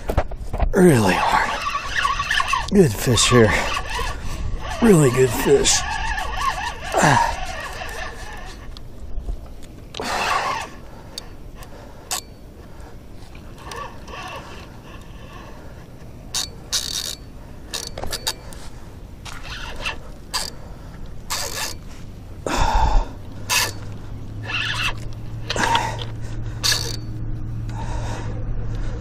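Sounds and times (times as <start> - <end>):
fishing reel clicks and scrapes: 1.0 - 8.8, 10.0 - 11.3, 12.1 - 12.4, 13.5 - 15.6, 16.3 - 18.7, 19.3 - 21.9, 23.4 - 27.2.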